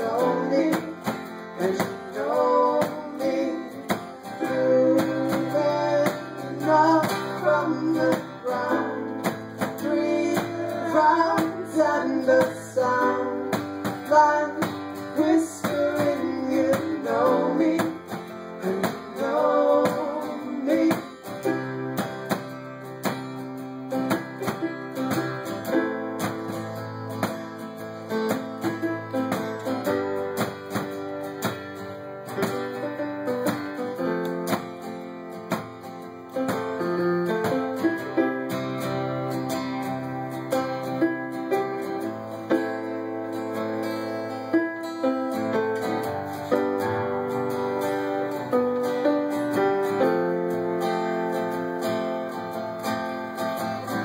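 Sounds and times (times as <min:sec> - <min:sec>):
man singing: 0:00.0 - 0:21.6
acoustic guitar strumming: 0:00.0 - 0:54.0
electric keyboard: 0:00.0 - 0:54.0.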